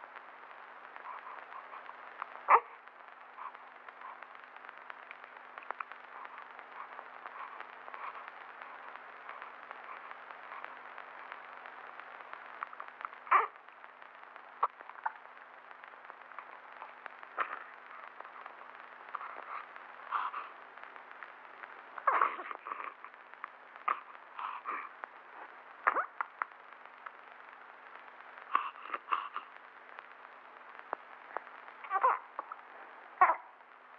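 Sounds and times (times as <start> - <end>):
old film soundtrack hiss: 0.0 - 33.9
newborn baby whimpering: 1.0 - 2.8, 13.3 - 13.6, 22.0 - 23.1, 31.8 - 32.6, 33.2 - 33.6.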